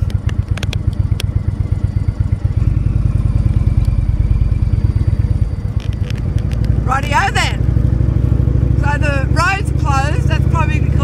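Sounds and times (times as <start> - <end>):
sharp clicks: 0.0 - 1.4, 5.6 - 6.8
motorcycle engine running: 0.0 - 11.0.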